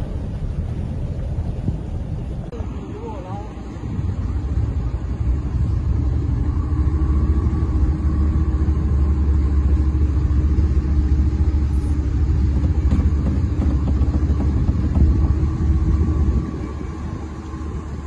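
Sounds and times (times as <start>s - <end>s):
wind buffeting microphone: 0.0s - 18.0s
small boat motor running: 4.3s - 18.0s.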